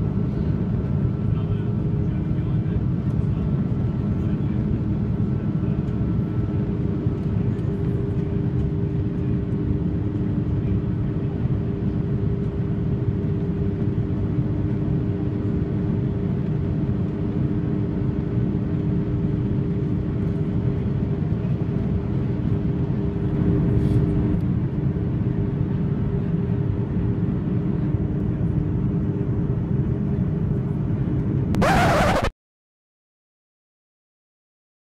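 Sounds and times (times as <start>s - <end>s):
airliner cabin engine roar: 0.0s - 32.3s
constant low hum: 0.0s - 32.3s.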